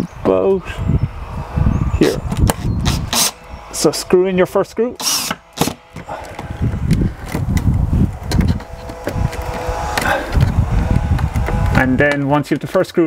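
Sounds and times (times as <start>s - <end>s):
cordless drill motor whine: 0.6s - 12.0s
low rumble: 6.4s - 12.1s.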